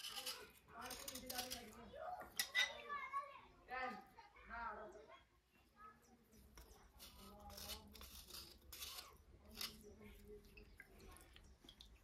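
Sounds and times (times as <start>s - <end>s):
knife scraping slate pencil: 0.0s - 1.7s, 6.5s - 10.0s.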